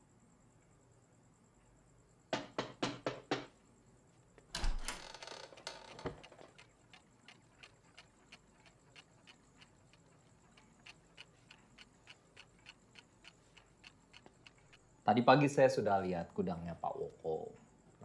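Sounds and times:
knocks on a door: 0:02.3 - 0:03.5
clock ticking: 0:06.0 - 0:14.9.

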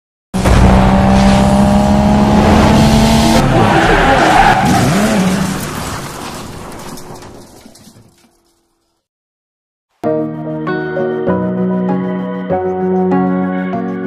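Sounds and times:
racing car engine high revs: 0:00.4 - 0:05.6
tyres skidding and squealing: 0:00.7 - 0:08.6.

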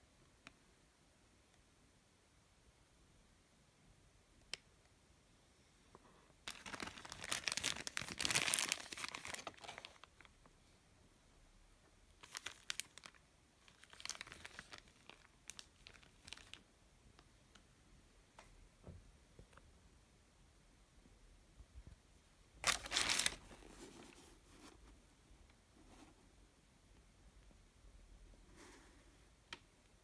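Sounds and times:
plastic packaging crinkling: 0:06.4 - 0:10.4, 0:12.2 - 0:16.6, 0:22.6 - 0:24.3.

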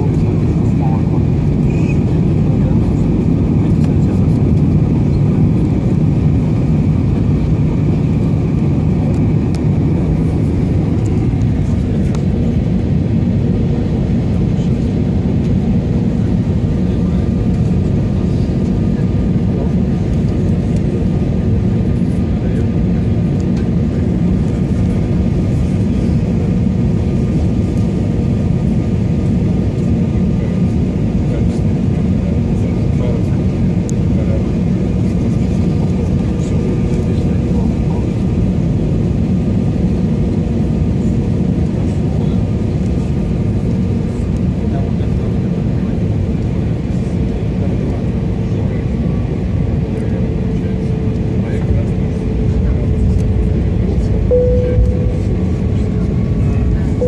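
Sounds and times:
aircraft cabin rumble: 0:00.0 - 0:57.0
faint high hum: 0:53.9 - 0:57.0
faint steady whine: 0:53.9 - 0:57.0.

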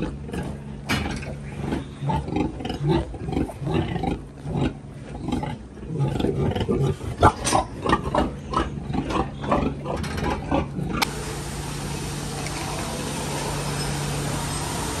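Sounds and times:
pigs grunting and squealing: 0:00.0 - 0:11.0
steady low hum: 0:00.0 - 0:15.0
water hose spraying mist: 0:11.0 - 0:15.0.

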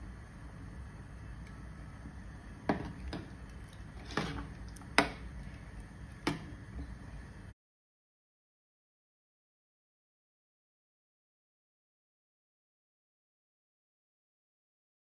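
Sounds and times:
low steady hum: 0:00.0 - 0:07.6
ladle stirring porridge: 0:01.3 - 0:07.0.

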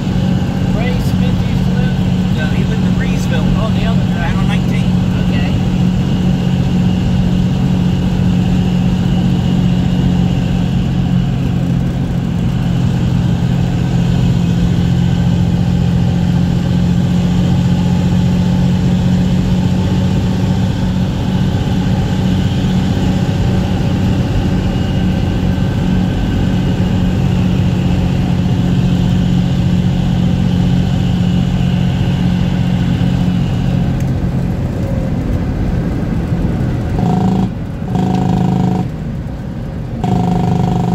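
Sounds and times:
diesel engine low drone: 0:00.0 - 0:40.9.

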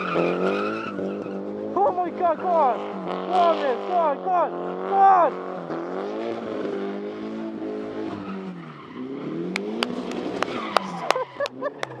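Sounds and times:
car engine revving: 0:00.0 - 0:12.0
tyres skidding: 0:00.0 - 0:12.0
sharp claps: 0:09.5 - 0:12.0.

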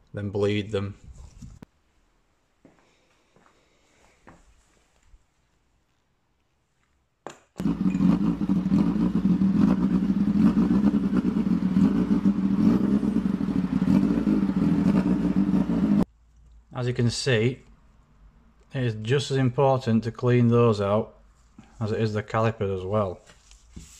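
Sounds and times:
motorcycle engine running: 0:07.6 - 0:16.0.

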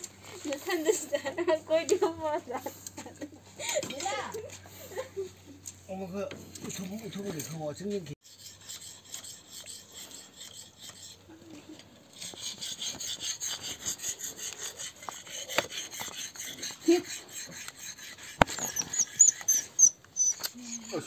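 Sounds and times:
knife cutting and scraping fruit: 0:06.5 - 0:21.0.

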